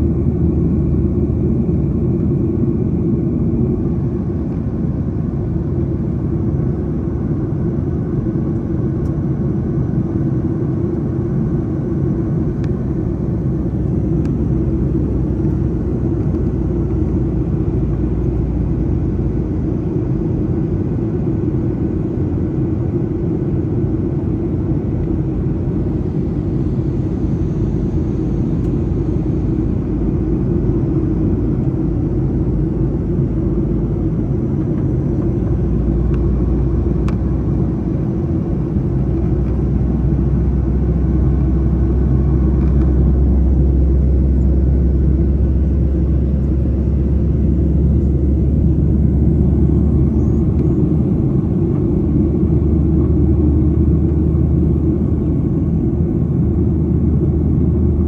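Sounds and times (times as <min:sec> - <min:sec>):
airliner cabin engine rumble: 0:00.0 - 0:58.0.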